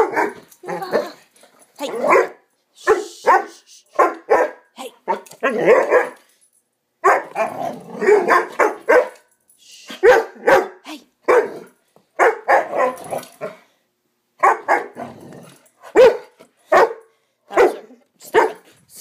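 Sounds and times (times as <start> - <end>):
dog barking: 0.0 - 0.4, 2.0 - 6.2, 7.0 - 7.4, 8.0 - 9.3, 9.9 - 13.6, 14.4 - 15.1, 15.8 - 18.6.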